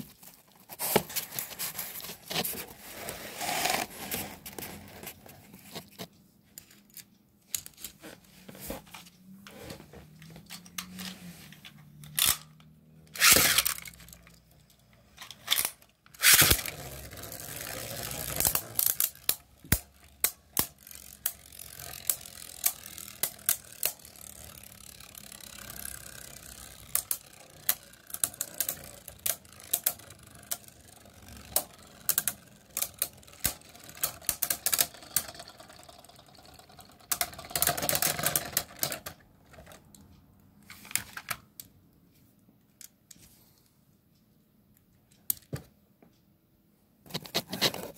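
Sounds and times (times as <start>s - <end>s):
spinning tops whirring: 16.2s - 38.6s.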